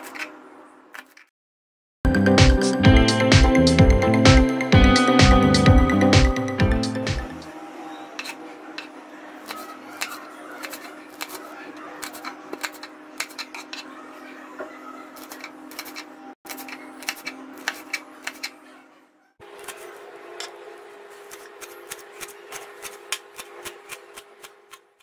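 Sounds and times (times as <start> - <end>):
knife chopping on cutting board: 21.2 - 24.9.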